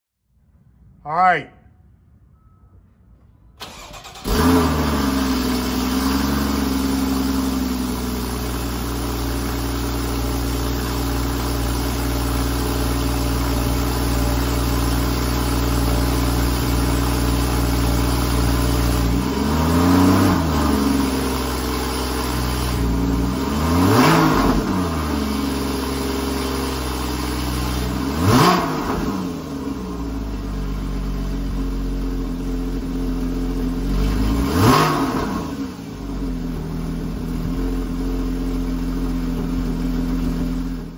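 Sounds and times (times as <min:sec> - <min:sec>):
engine cranking: 0:03.6 - 0:04.7
engine revving: 0:03.6 - 0:30.2, 0:33.7 - 0:38.7
car engine idling: 0:03.6 - 0:40.9.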